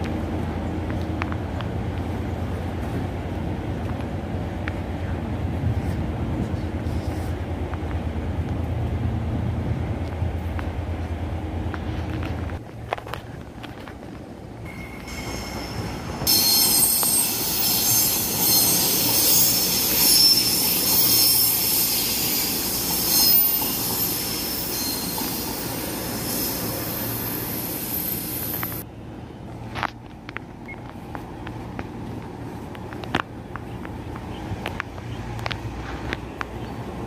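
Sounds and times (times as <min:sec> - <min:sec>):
train rumble: 0:00.0 - 0:37.0
train wheels squealing: 0:14.7 - 0:28.8.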